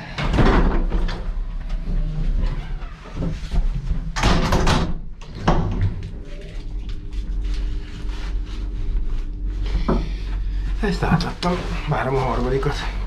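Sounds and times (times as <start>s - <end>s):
steady low rumble: 5.7s - 13.0s.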